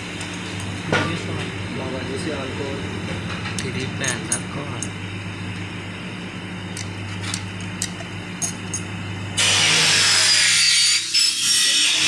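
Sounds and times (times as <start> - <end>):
steady low hum: 0.0 - 10.4
hissing power tool: 9.4 - 12.0.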